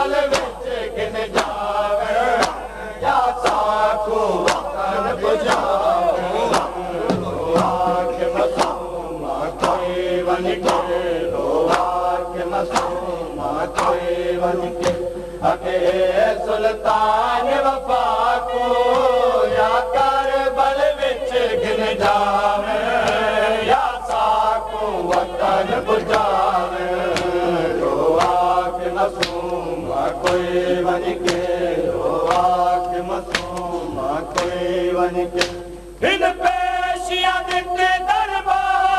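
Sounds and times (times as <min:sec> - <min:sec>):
men chanting a lament: 0:00.0 - 0:38.9
chest beating slaps: 0:04.4 - 0:04.7, 0:14.7 - 0:15.3, 0:29.2 - 0:29.6, 0:31.2 - 0:31.6, 0:32.2 - 0:34.6, 0:35.4 - 0:35.7.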